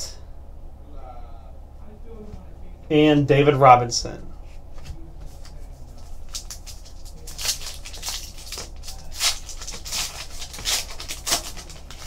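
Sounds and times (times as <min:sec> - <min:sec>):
foil wrapper tearing and crinkling: 0:06.0 - 0:12.0.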